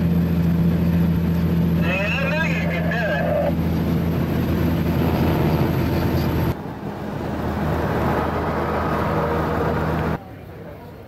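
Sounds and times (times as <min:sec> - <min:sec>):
road noise: 0:00.0 - 0:11.0
truck engine drone: 0:00.0 - 0:11.0.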